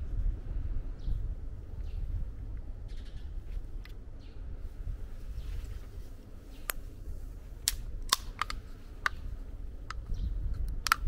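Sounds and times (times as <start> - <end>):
steady low rumble: 0.0 - 11.0
can pull-tab clicks and snaps: 7.6 - 9.2, 10.6 - 11.0.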